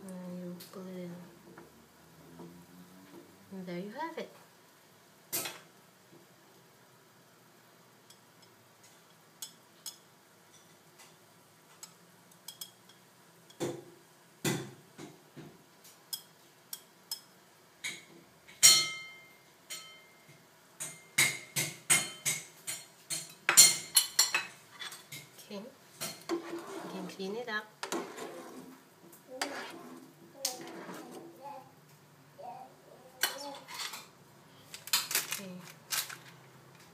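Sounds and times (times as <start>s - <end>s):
utensils clinking against plates: 33.2s - 34.1s.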